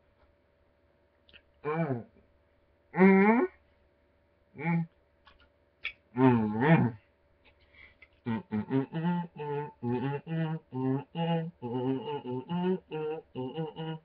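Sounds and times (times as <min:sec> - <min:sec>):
man humming muffled: 0:01.6 - 0:02.2, 0:02.9 - 0:03.6, 0:04.6 - 0:05.0, 0:05.9 - 0:07.0, 0:08.2 - 0:14.0.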